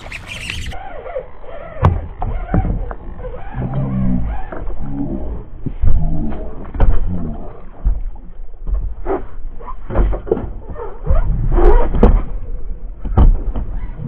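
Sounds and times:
low rumble: 0.0s - 9.6s.

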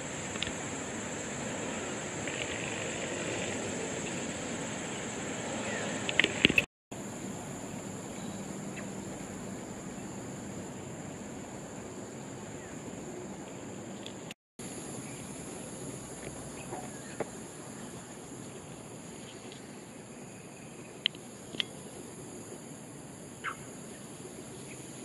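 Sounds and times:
insects droning: 0.0s - 25.0s
faint bird chirps: 23.4s - 24.9s.

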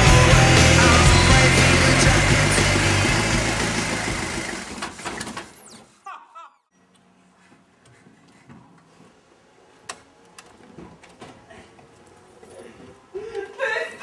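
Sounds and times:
background music: 0.0s - 4.5s.

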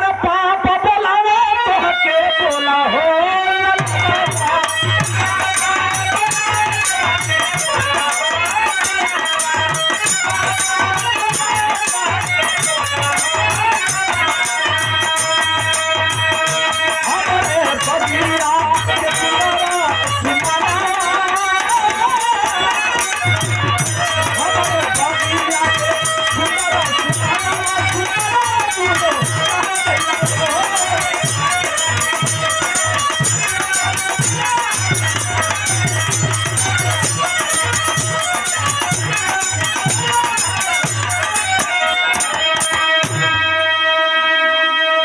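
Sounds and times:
jingling hand percussion: 1.7s - 45.0s
wavering melody: 3.6s - 44.7s.

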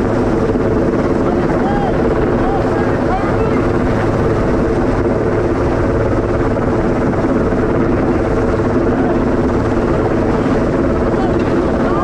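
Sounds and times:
helicopter rotor hovering: 0.0s - 12.0s.

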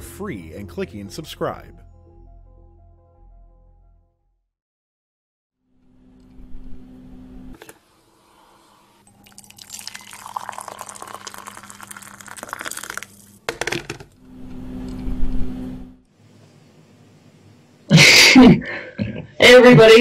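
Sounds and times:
liquid pouring and splashing: 9.1s - 13.4s.

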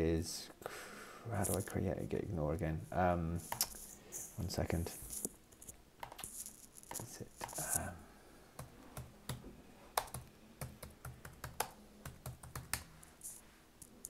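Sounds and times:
typing on computer keyboard: 10.0s - 12.9s.

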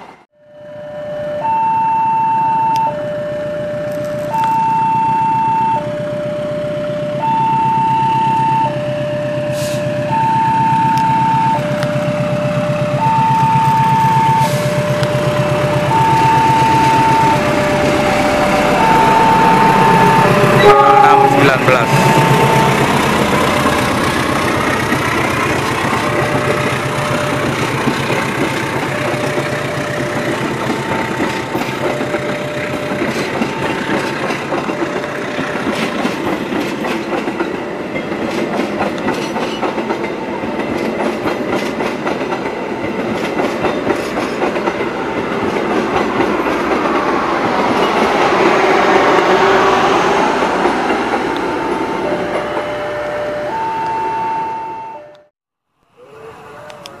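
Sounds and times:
two-tone crossing alarm: 0.4s - 35.8s, 51.5s - 55.3s
train wheels clattering: 21.4s - 49.4s.

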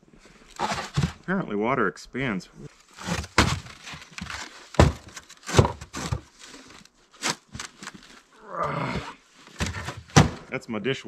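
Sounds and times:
frozen jugs knocking in crate: 3.0s - 6.2s
person grunting: 8.4s - 9.2s.

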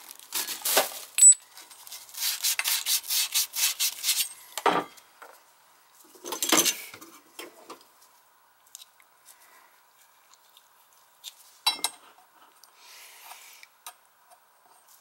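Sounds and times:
quick rubbing scraping strokes: 2.0s - 4.3s
tools clattering: 11.7s - 12.1s.

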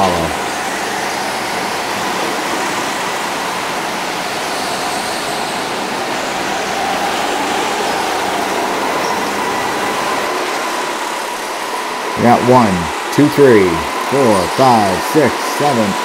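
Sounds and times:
go-kart motor and tyre rush: 0.0s - 12.8s
faint wavering whine: 0.0s - 16.0s.

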